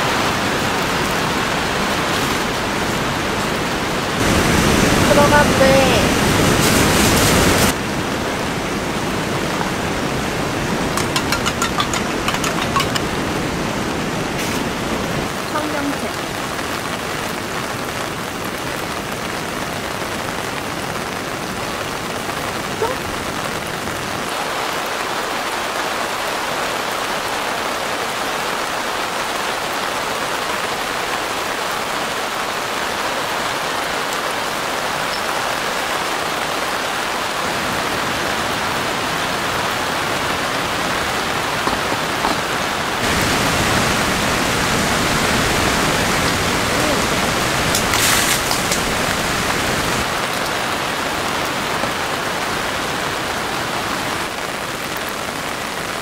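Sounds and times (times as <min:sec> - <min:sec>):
heavy rain falling: 0:00.0 - 0:56.0
sharp crackle: 0:43.0 - 0:50.6.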